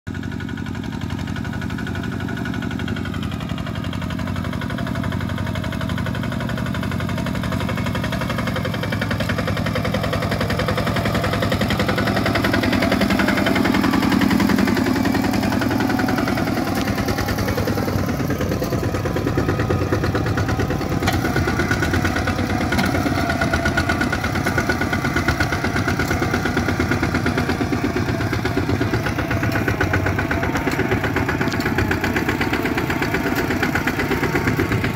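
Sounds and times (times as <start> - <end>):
walking tractor diesel engine chugging: 0.1 - 34.9.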